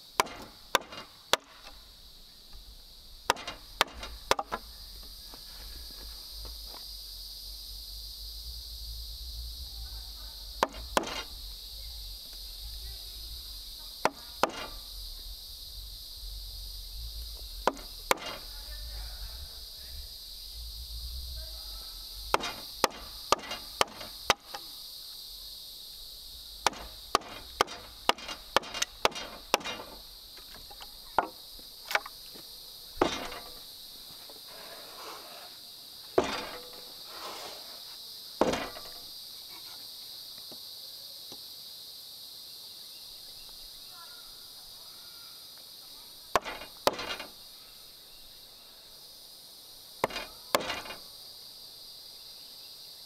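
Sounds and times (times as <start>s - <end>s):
high-pitched insect buzz: 0.0s - 53.0s
hand tool striking wood: 0.2s - 1.8s, 3.3s - 4.6s, 10.6s - 11.3s, 14.0s - 14.8s, 17.6s - 18.5s, 22.3s - 24.7s, 26.6s - 32.1s, 33.0s - 33.6s, 36.2s - 36.9s, 38.4s - 39.0s, 46.3s - 47.3s, 50.0s - 51.0s.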